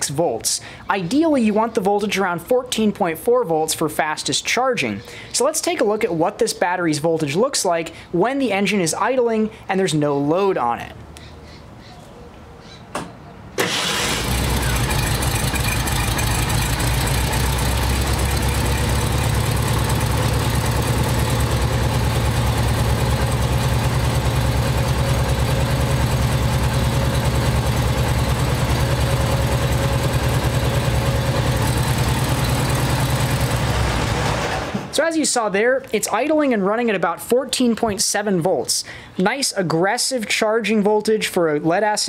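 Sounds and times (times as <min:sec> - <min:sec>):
car engine idling: 0:13.6 - 0:34.9.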